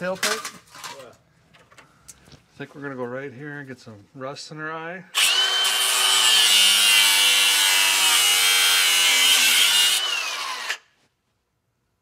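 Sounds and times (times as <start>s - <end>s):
grinder whining: 5.2s - 10.9s.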